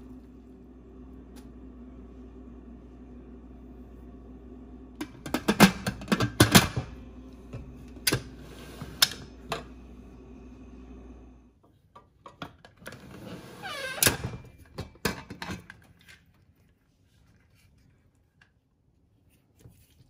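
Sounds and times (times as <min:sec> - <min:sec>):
steady hum: 0:00.0 - 0:11.5.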